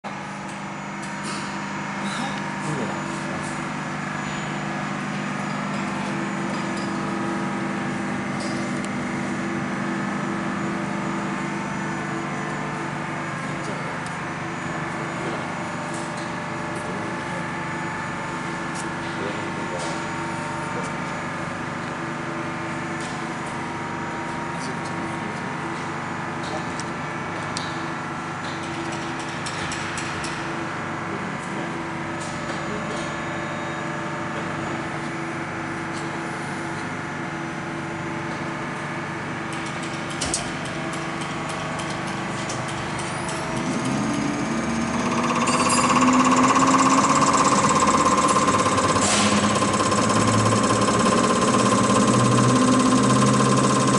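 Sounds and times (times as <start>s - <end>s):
test bench mechanical hum: 0.0s - 53.9s
pump high whine: 42.6s - 53.9s
rapid injector ticking: 43.6s - 53.9s.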